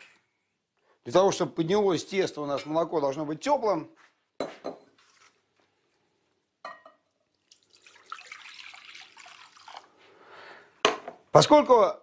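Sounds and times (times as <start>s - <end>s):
milk pouring into a bowl: 7.1s - 10.1s.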